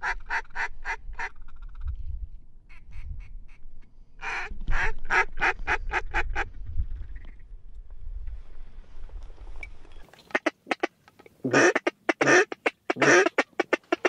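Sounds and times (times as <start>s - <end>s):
duck call quacks: 0.0s - 1.4s, 4.2s - 6.5s, 10.3s - 14.0s.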